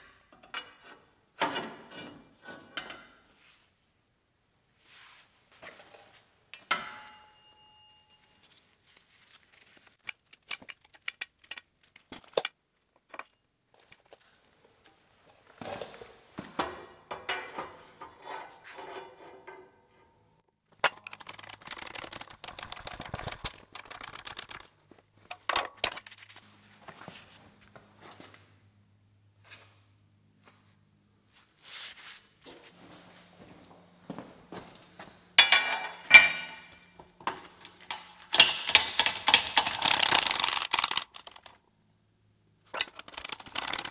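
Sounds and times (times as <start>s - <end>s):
steel clinking and clanking: 35.4s - 37.0s.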